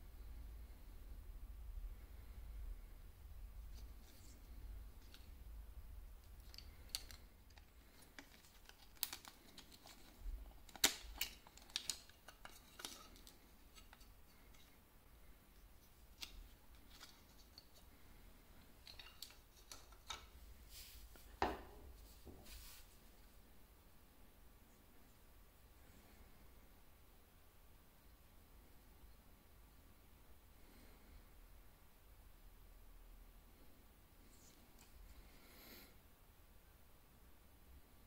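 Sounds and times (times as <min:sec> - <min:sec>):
plastic clicks and snaps: 0:06.2 - 0:14.1.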